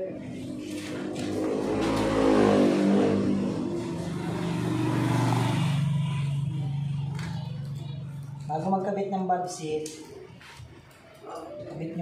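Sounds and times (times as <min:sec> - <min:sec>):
vehicle engine revving: 0:00.2 - 0:08.4.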